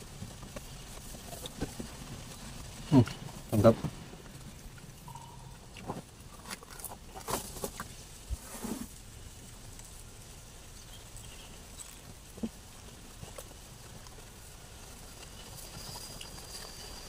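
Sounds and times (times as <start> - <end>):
faint steady background noise: 0.0 - 17.0
leaves rustling: 0.0 - 17.0
mouth sounds eating: 10.8 - 14.4.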